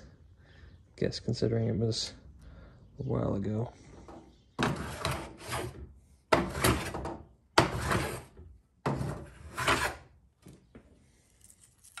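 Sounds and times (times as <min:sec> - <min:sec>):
tools scraping and sliding in toolbox: 0:04.6 - 0:10.1.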